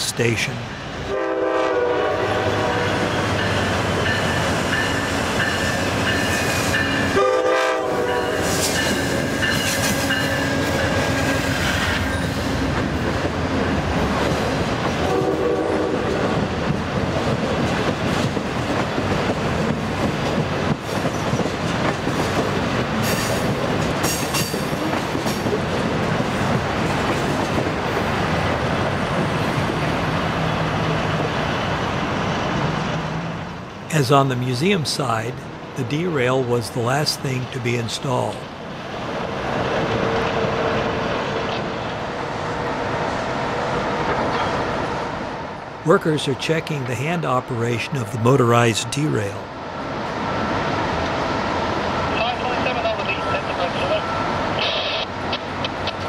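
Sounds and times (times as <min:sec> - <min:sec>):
train horn blasts: 0:01.1 - 0:03.2, 0:07.1 - 0:08.6, 0:15.1 - 0:16.2
train wheels clattering over track: 0:07.8 - 0:29.9.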